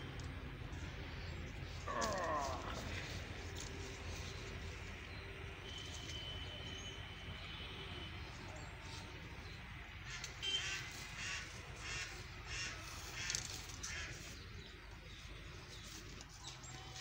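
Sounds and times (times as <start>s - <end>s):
crows cawing: 1.9s - 2.9s, 10.1s - 14.3s.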